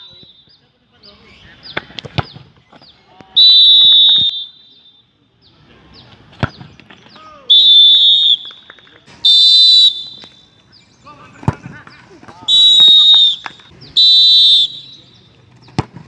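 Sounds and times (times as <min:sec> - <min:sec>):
referee whistle blasts: 0:03.4 - 0:05.0, 0:07.5 - 0:08.6, 0:09.2 - 0:10.5, 0:12.4 - 0:15.2
football being kicked: 0:15.6 - 0:16.0.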